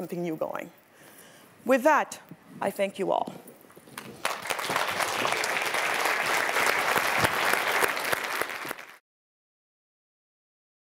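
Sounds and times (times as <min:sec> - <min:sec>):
audience applauding: 0:04.0 - 0:09.0.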